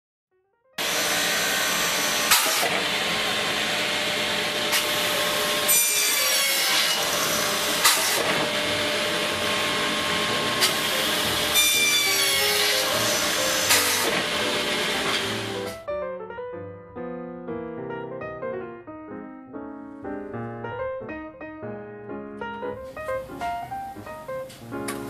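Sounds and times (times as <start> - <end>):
sharp knock of saw cut: 0.8 - 2.8, 4.7 - 8.6, 10.6 - 14.4
miter saw cutting wood: 0.8 - 15.7.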